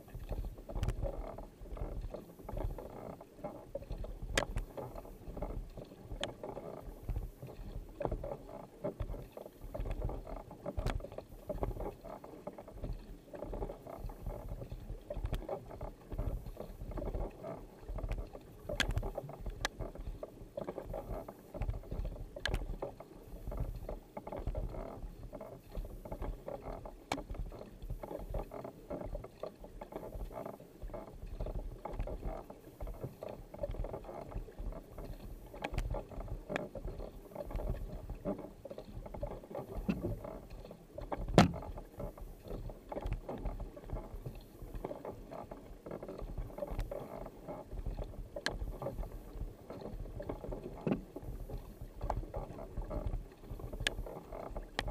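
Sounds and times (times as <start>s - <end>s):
paddle blades splashing: 0.0s - 54.9s
water rushing along hull: 0.0s - 54.9s
sharp clicks or knocks: 41.3s - 41.7s.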